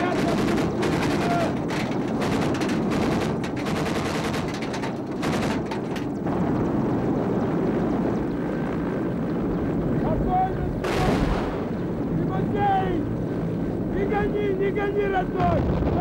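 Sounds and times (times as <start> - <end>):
machine gun firing rapid bursts: 0.0 - 5.9
low engine rumble: 0.0 - 16.0.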